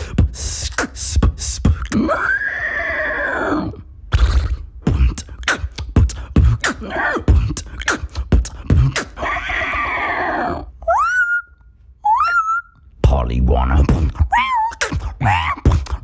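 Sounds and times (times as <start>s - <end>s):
beatbox percussive clicks: 0.0s - 2.0s, 4.1s - 9.2s, 14.8s - 16.0s.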